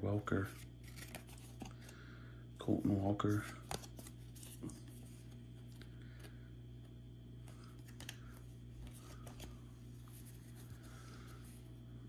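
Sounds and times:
steady low hum: 0.0s - 12.0s
cards sliding and ticking: 0.5s - 2.0s, 3.3s - 6.3s, 7.4s - 10.8s.

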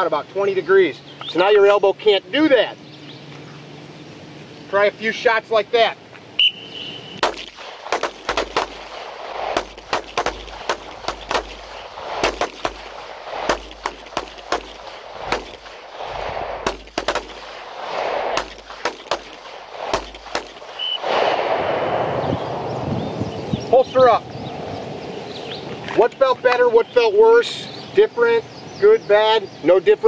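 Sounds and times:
pistol shots: 7.2s - 21.6s.

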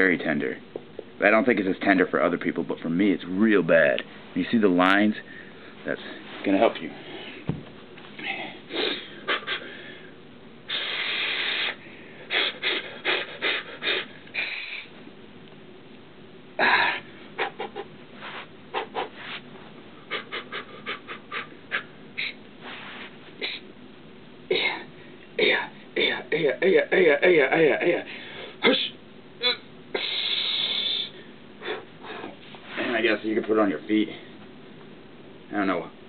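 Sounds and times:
man breathing hard: 8.2s - 15.0s, 16.6s - 23.6s
sharp puffs and sniffs: 10.7s - 14.8s, 17.6s - 19.5s, 20.1s - 23.6s.

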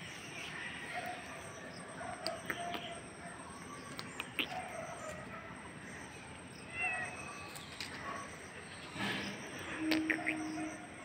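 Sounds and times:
dove-like bird calls: 0.0s - 11.0s
high bird chirps: 5.9s - 11.0s.

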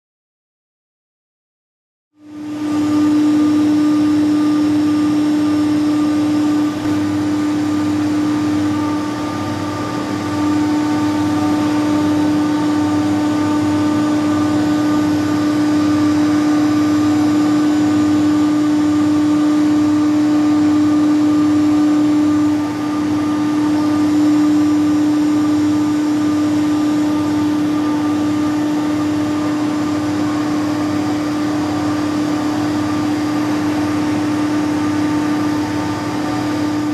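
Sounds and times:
machining centre mechanical hum: 2.2s - 36.9s.

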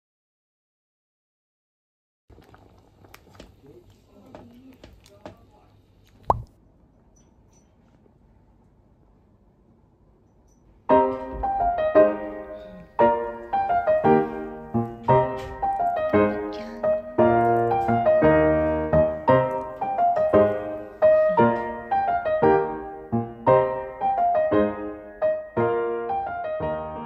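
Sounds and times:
gentle piano melody: 10.8s - 27.0s.

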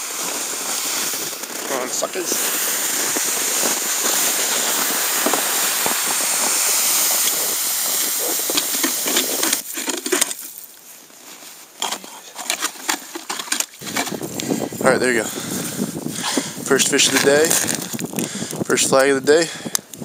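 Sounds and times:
steady hiss: 0.0s - 11.8s
footsteps crunching on snow: 0.0s - 18.9s
ice auger grinding into ice: 0.0s - 19.1s.

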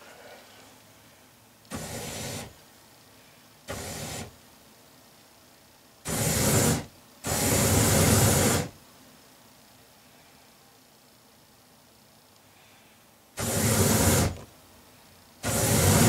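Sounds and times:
propane burner flames rushing: 1.7s - 2.6s, 3.6s - 4.4s, 6.0s - 8.8s, 13.4s - 14.5s, 15.4s - 16.0s.

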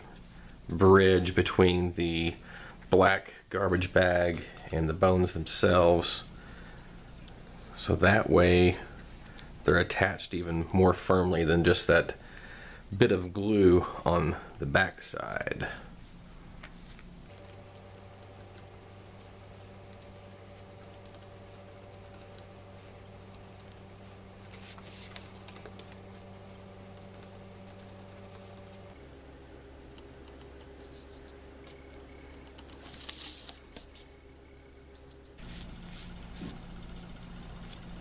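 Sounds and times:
paintbrush scratching and tapping: 17.4s - 29.0s, 29.9s - 36.6s.

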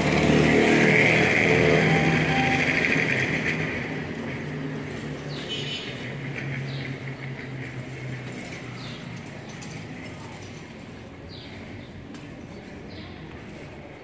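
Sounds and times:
vehicle engine running: 0.0s - 5.4s.

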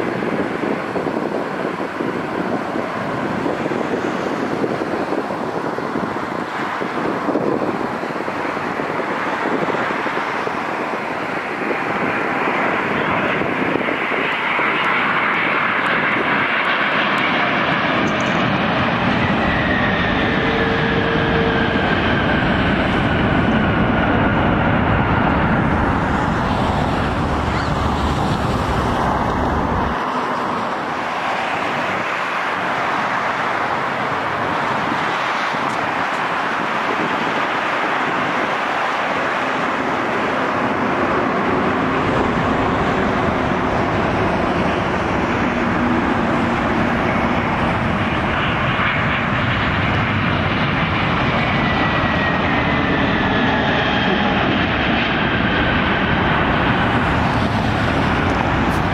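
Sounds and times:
jet engine deep rumble: 0.0s - 58.9s
jet roaring on runway: 0.0s - 58.9s.

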